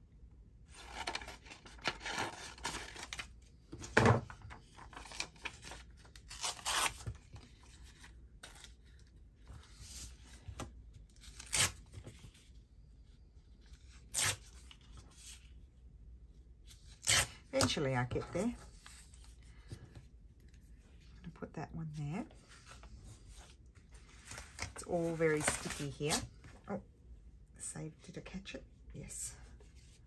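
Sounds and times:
paper rustling: 22.4s - 26.5s.

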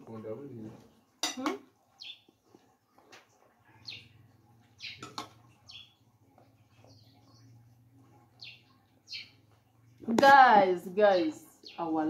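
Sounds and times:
bird chirping: 1.9s - 2.4s, 3.6s - 12.0s.

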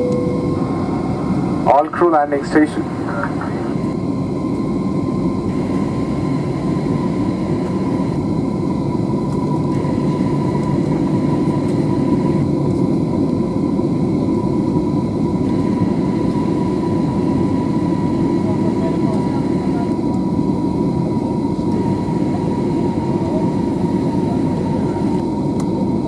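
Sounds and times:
thin steady tone: 0.0s - 1.5s
airplane cabin engine noise: 0.0s - 26.0s.

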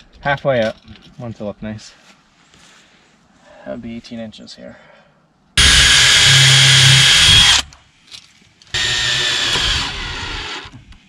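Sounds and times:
power drill driving screws: 5.6s - 7.7s, 8.8s - 10.8s.

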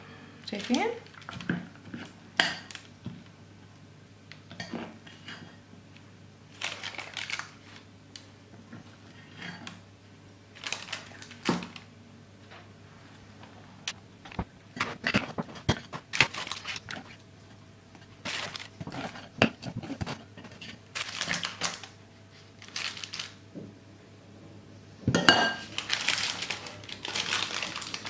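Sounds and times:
paper rustling: 6.6s - 7.9s, 10.6s - 11.8s, 14.3s - 17.2s, 18.0s - 23.4s, 25.7s - 28.0s.

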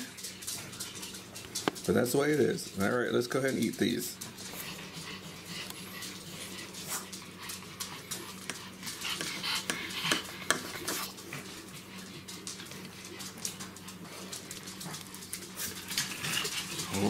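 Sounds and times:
knife scraping a plate: 8.0s - 11.2s.

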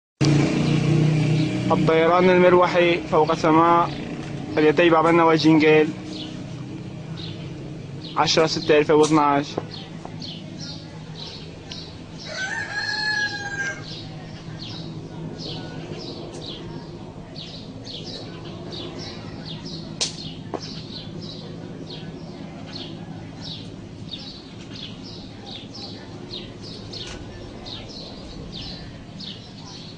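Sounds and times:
distant helicopter drone: 0.2s - 29.9s
rooster crowing: 12.2s - 14.1s.

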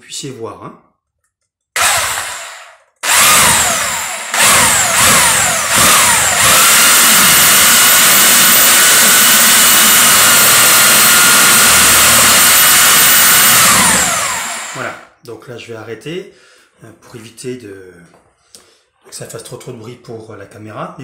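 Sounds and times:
drill whining: 1.8s - 15.1s.

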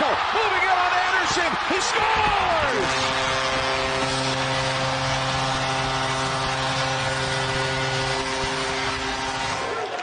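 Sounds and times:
crowd cheering: 0.0s - 10.0s
goal horn sustained chord: 2.6s - 10.0s.

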